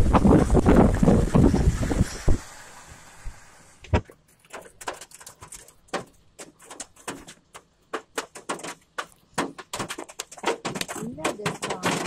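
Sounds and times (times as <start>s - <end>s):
hailstones striking hard surfaces: 4.3s - 12.0s.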